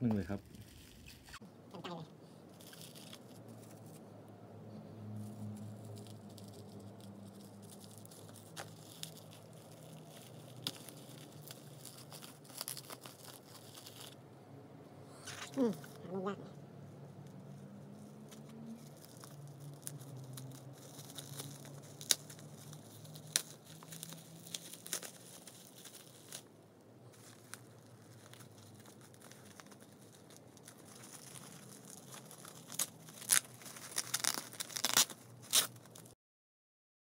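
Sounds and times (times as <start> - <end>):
bubble wrap crinkling: 0.0 - 4.0, 5.2 - 14.2, 17.0 - 36.2
packing tape tearing: 2.5 - 4.0, 5.2 - 14.2, 18.0 - 26.5, 27.1 - 36.1
scissors snipping bubble wrap: 5.4 - 14.2, 18.2 - 26.4, 27.2 - 36.1.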